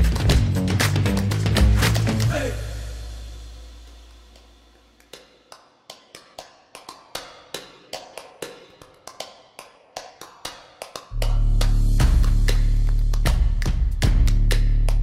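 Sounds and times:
background music: 0:00.0 - 0:04.6, 0:11.1 - 0:15.0.

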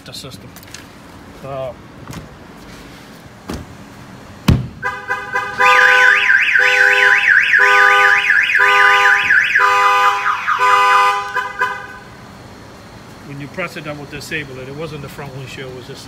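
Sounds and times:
fist knocking on car window: 0:04.5 - 0:04.8
car alarm siren warbling: 0:04.8 - 0:12.2.

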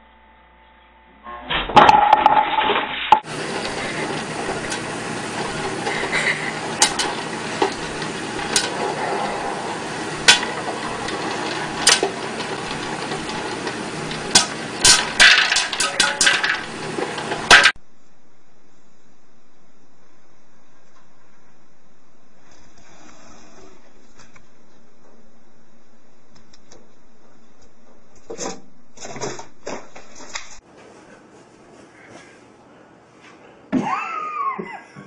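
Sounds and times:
loud clatter: 0:01.7 - 0:17.8
popcorn popping: 0:01.7 - 0:17.8
hot oil hissing: 0:03.2 - 0:17.8.

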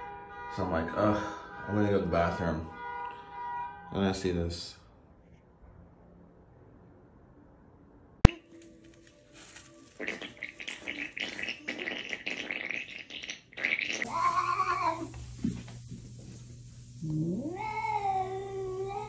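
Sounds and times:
cat meowing: 0:14.1 - 0:15.1, 0:17.4 - 0:19.0
cat yowling: 0:14.1 - 0:15.1, 0:17.2 - 0:19.0.

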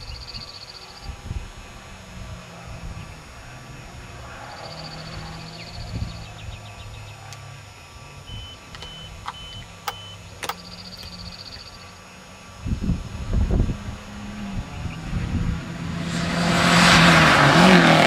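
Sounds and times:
distant car engine: 0:00.0 - 0:18.0
sharp clicks: 0:08.7 - 0:11.7.

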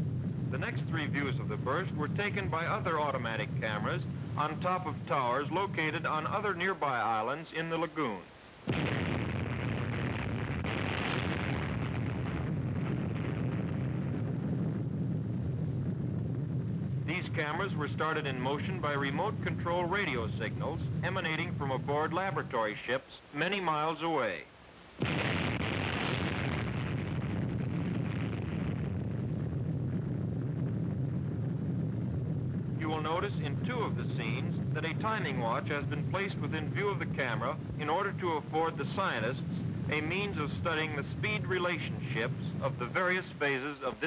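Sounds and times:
rumbling explosion roar: 0:00.0 - 0:06.6, 0:08.7 - 0:22.8, 0:25.0 - 0:43.6
hissing blast top: 0:08.6 - 0:22.6, 0:25.0 - 0:43.6.

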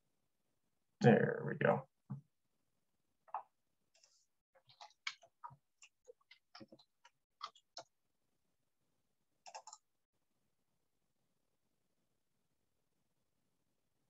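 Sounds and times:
faint keyboard keystrokes: 0:09.4 - 0:09.9.

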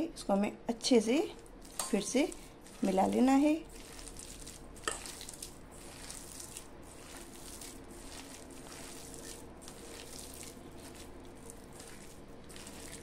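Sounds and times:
hands tossing vegetables in bowl: 0:01.0 - 0:13.0.

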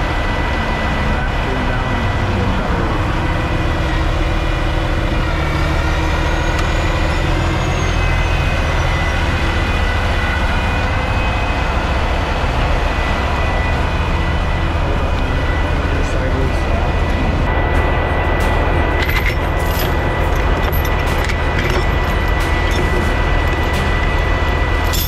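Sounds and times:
diesel truck engine running: 0:00.0 - 0:25.0
faint high whistle: 0:05.6 - 0:11.8.

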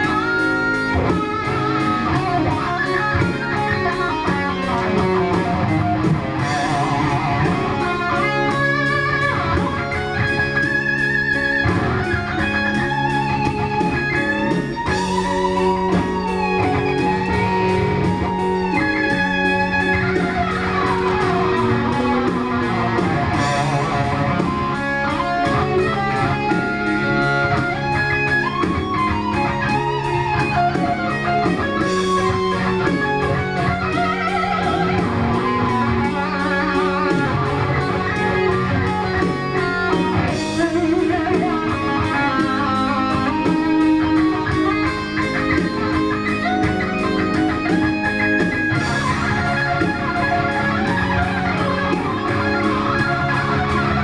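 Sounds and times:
electric guitar lead: 0:00.0 - 0:54.0.

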